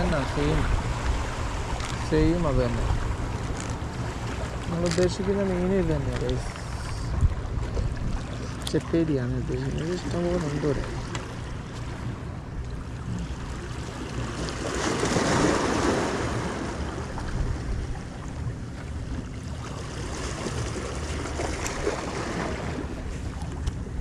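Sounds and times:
wind on microphone: 0.0s - 9.0s, 14.8s - 18.7s
waves splashing against rocks: 13.3s - 17.7s, 19.3s - 23.8s.

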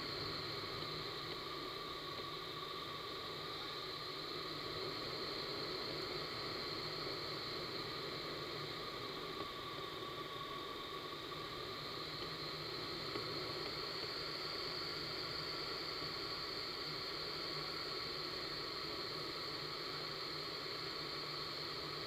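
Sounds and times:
rushing air and fan noise: 0.0s - 22.0s.

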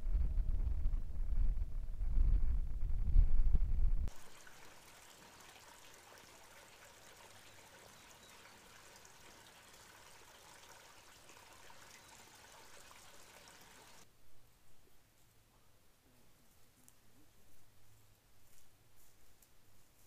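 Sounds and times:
creek water rushing: 4.1s - 14.0s.

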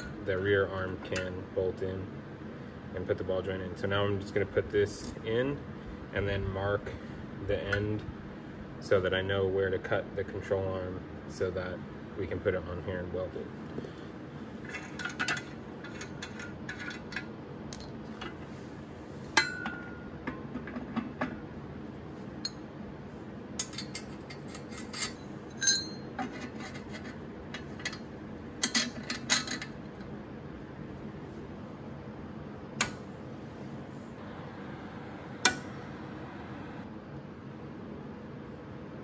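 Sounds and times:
metal parts clinking: 14.6s - 18.3s, 23.6s - 29.7s.

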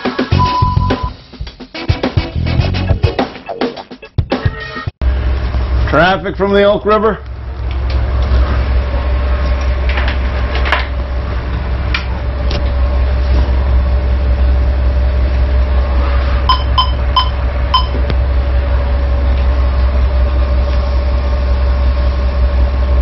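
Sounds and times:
short electronic beeps: 0.4s - 1.1s, 16.5s - 18.0s
boat engine running: 5.0s - 23.0s.

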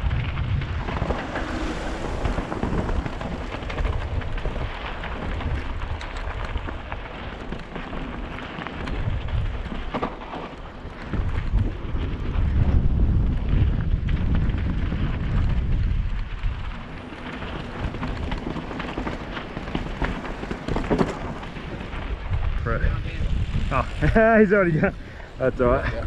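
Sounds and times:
bike clicks and rattles: 0.0s - 22.5s
wind buffeting microphone: 0.0s - 26.0s.

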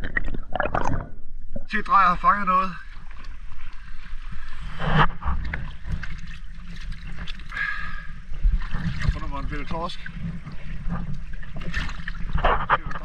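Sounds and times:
water lapping against boat: 2.1s - 13.0s
wind rumbling on microphone: 8.4s - 13.0s.

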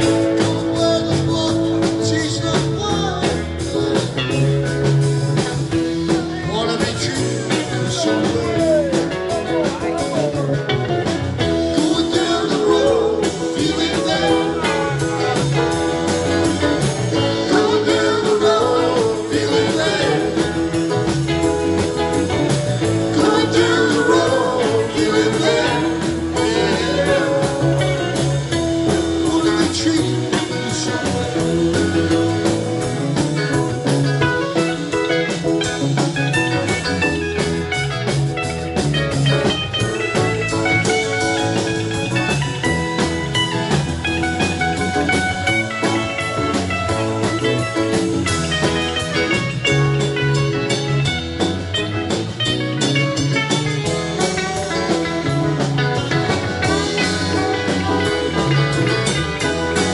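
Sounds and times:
bass: 0.0s - 59.9s
drums: 0.0s - 59.9s
electric guitars: 0.0s - 59.9s
keyboard: 0.0s - 59.9s
rock band playing: 0.0s - 59.9s
woman singing: 23.1s - 27.5s.

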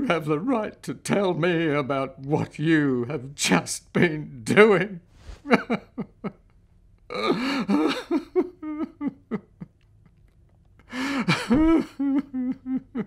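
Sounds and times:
person sobbing: 7.1s - 9.7s, 10.8s - 13.0s.

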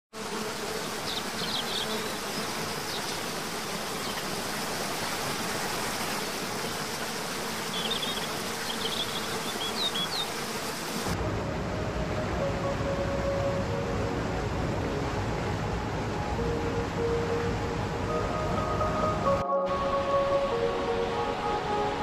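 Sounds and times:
waterfall rushing: 7.7s - 22.0s.

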